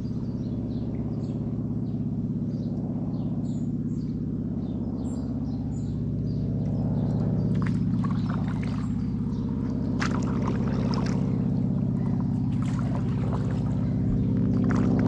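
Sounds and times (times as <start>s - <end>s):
steady low hum: 0.0s - 15.0s
water dripping from paddle: 9.6s - 15.0s.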